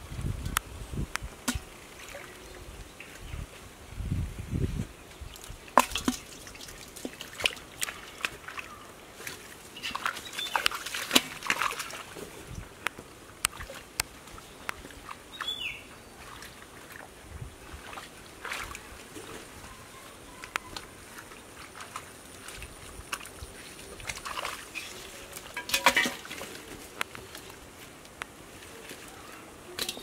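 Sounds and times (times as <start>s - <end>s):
hands splashing in muddy water: 5.3s - 12.2s, 17.7s - 19.1s, 21.2s - 27.5s.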